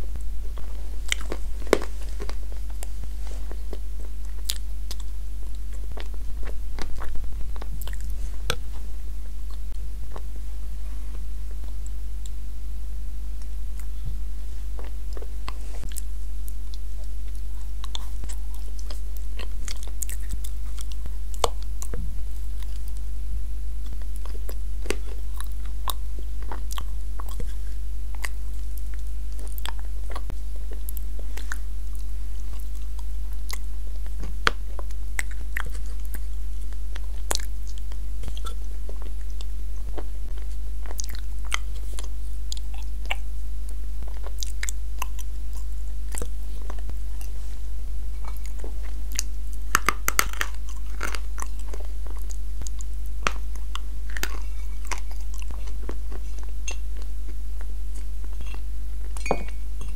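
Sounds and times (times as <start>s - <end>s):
short crunches: 0.0s - 8.9s
low electrical hum: 0.0s - 59.9s
chewing and wet mouth clicks: 4.3s - 8.7s, 29.4s - 43.2s.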